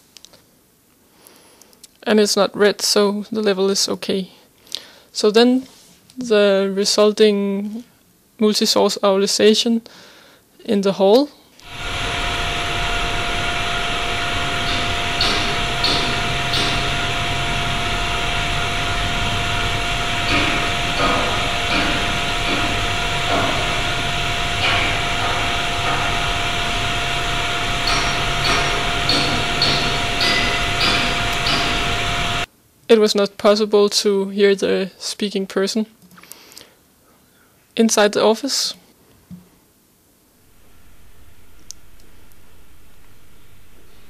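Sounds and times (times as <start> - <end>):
factory machinery hum: 11.6 - 32.5, 40.4 - 44.0
hammer striking steel: 11.6 - 32.5.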